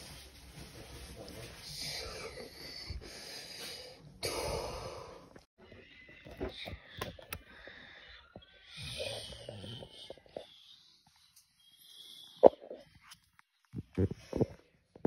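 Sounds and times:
wheezy breathing: 1.7s - 5.4s.

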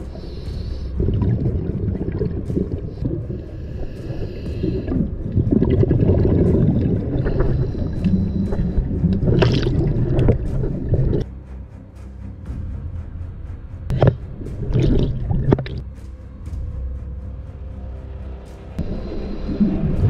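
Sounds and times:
regulator hiss on inhalation: 0.0s - 1.0s, 3.3s - 5.0s
exhaled bubbles rushing: 0.8s - 11.3s, 13.9s - 15.8s, 18.8s - 20.0s.

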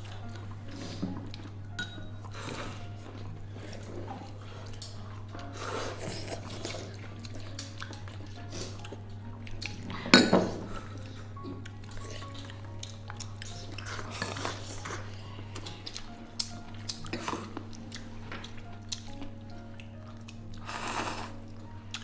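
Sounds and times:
soft background music: 0.0s - 22.0s.

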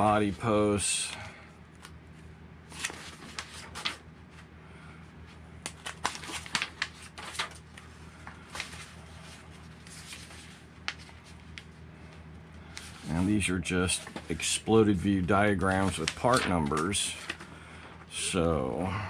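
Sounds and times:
paper pages rustling: 2.7s - 4.5s, 5.6s - 11.7s, 12.7s - 17.6s.

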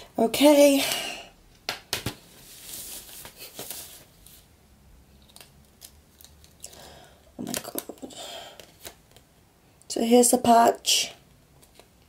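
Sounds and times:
fabric rustling: 2.2s - 4.5s.

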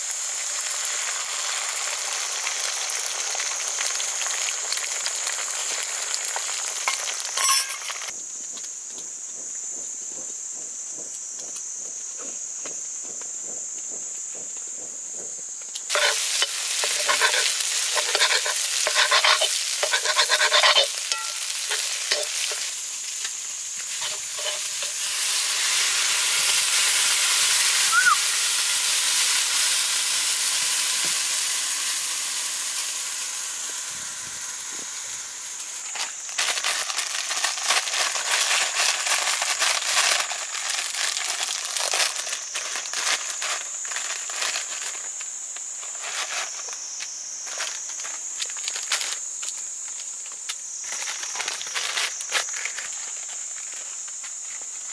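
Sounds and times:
food sizzling in a pan: 0.0s - 8.2s, 15.9s - 54.9s
utensil scraping a pan: 7.4s - 8.1s, 15.9s - 23.2s, 23.8s - 26.6s.

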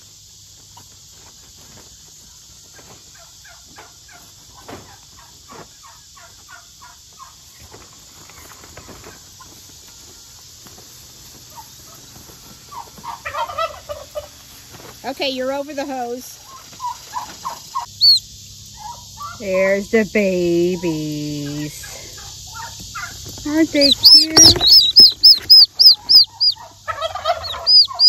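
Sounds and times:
insect hiss: 0.0s - 28.0s
short bird calls: 16.8s - 18.2s, 22.5s - 28.0s.

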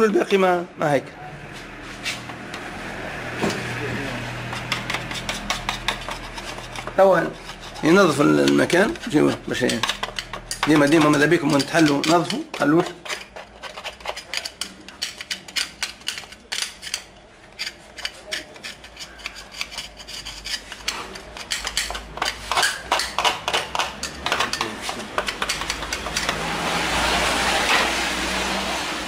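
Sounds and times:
metal tool scraping metal: 4.4s - 27.0s.

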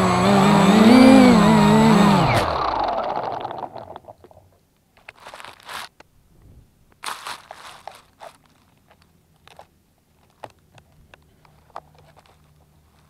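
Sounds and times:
crunching and rustling: 4.1s - 13.0s.

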